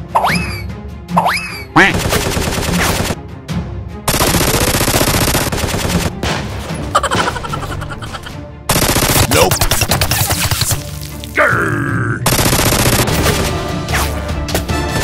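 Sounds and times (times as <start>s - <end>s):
background music: 0.0s - 15.0s
machine-gun fire sound effects: 4.1s - 6.3s, 8.7s - 10.7s, 12.3s - 13.7s.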